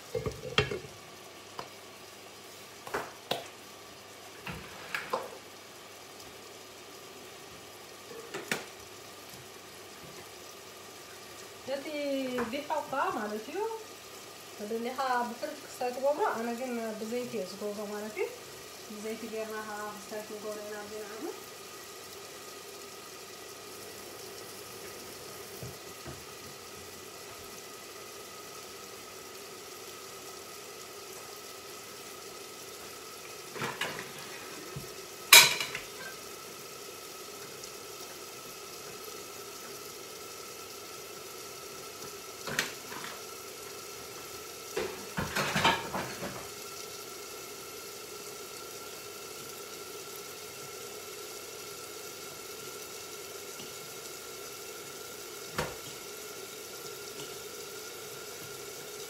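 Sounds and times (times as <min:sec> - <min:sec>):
dishes and utensils clattering: 0:35.4 - 0:36.2, 0:45.2 - 0:46.4.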